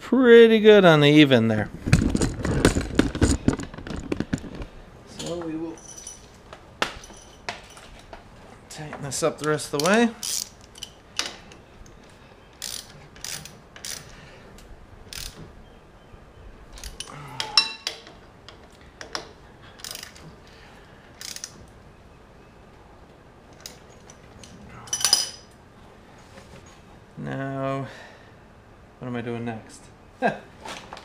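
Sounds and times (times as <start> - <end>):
ratchet wrench clicking: 9.8 - 11.3, 12.6 - 14.2, 15.1 - 15.4, 19.8 - 20.2, 21.2 - 21.6.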